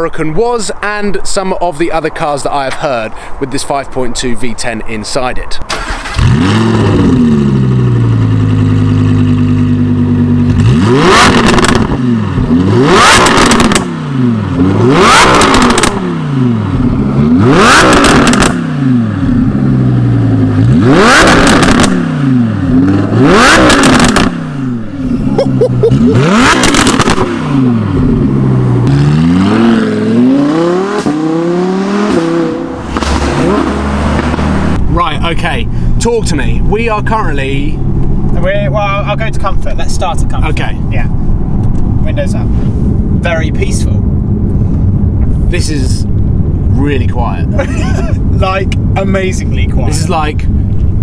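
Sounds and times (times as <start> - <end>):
car engine revving hard: 5.7 - 34.8.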